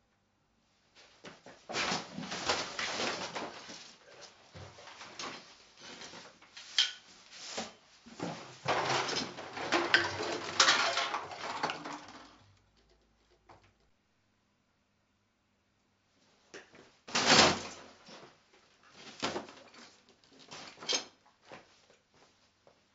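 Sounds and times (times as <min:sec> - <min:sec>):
junk clattering onto hard floor: 0:08.2 - 0:12.5.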